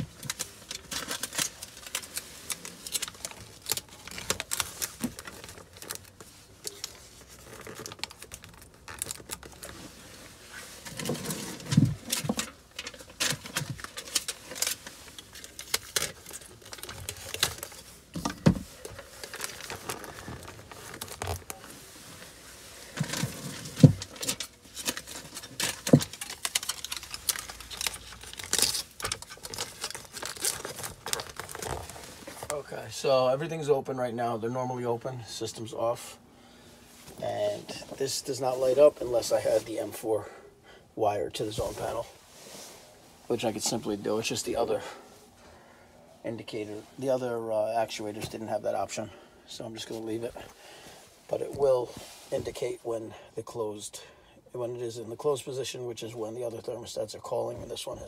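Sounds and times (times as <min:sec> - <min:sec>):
foil insulation crinkling: 0:00.0 - 0:32.7.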